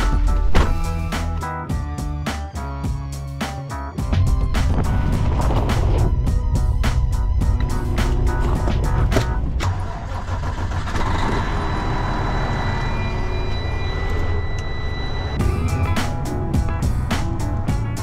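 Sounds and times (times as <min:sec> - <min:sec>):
background music: 0:00.0 - 0:10.2, 0:12.5 - 0:18.0
diesel truck engine idling: 0:04.4 - 0:14.6.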